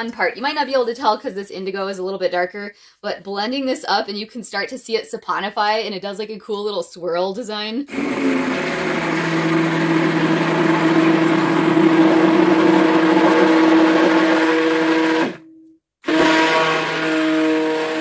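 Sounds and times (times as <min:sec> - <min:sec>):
liquid churning: 0:07.9 - 0:15.4
stick blender motor hum: 0:07.9 - 0:15.4, 0:16.0 - 0:18.0.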